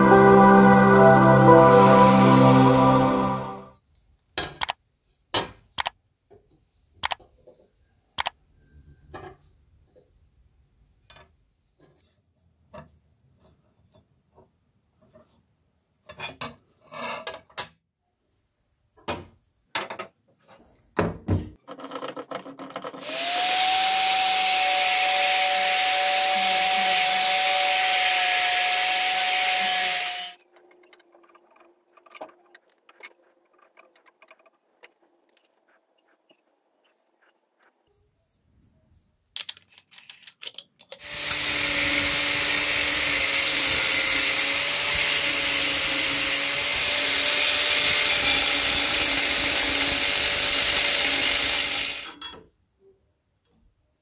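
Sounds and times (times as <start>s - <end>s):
power tool whining: 23.0s - 30.4s, 41.0s - 52.2s.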